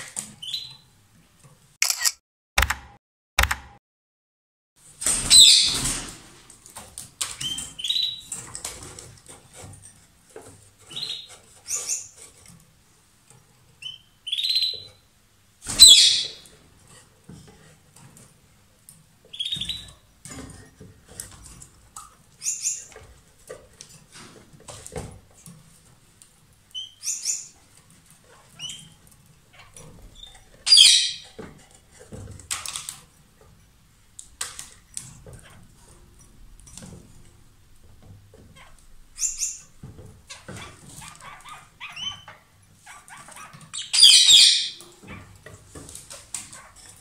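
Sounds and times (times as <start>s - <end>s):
lovebirds chirping shrilly: 15.7s - 16.4s, 30.7s - 31.2s, 43.8s - 44.8s.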